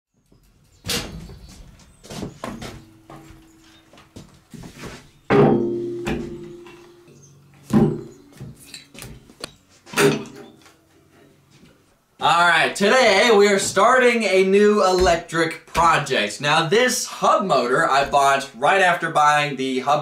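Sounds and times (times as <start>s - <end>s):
steel ringing: 5.2s - 8.9s
heavy objects thumping on steel bench: 5.3s - 7.0s, 7.7s - 9.2s.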